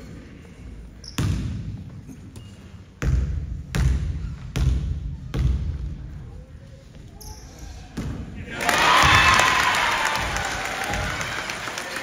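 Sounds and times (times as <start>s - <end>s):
basketball bouncing with echo: 1.0s - 2.2s, 3.0s - 6.4s.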